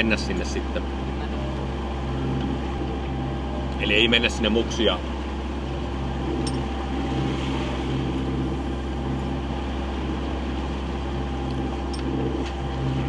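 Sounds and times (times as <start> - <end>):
boat diesel engine droning: 0.0 - 13.0.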